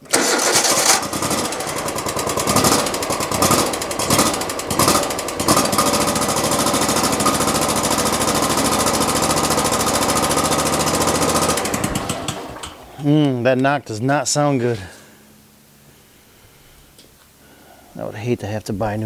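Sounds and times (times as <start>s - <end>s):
mower engine knocking: 0.0s - 12.8s.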